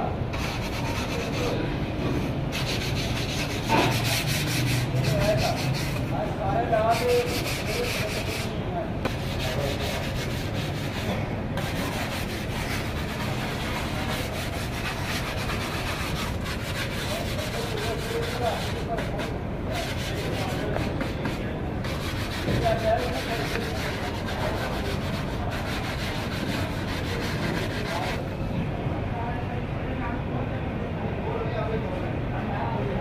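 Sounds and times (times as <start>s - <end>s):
hands rubbing clay: 6.9s - 28.2s.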